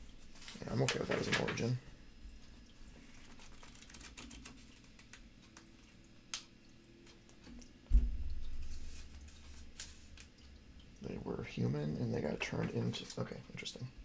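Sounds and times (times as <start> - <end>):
paper pages rustling: 0.3 - 1.8, 3.0 - 5.2, 8.7 - 10.3
low thump with rumble: 7.9 - 8.6.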